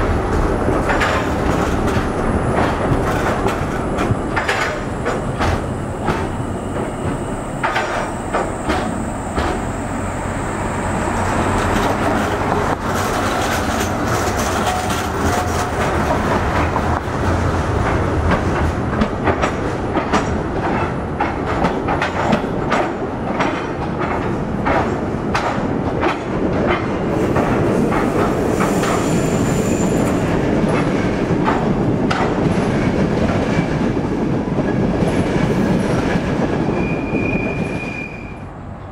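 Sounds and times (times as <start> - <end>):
tram wheels clattering over rails: 0.0 - 38.3
high squeal: 28.7 - 30.2, 36.7 - 38.5.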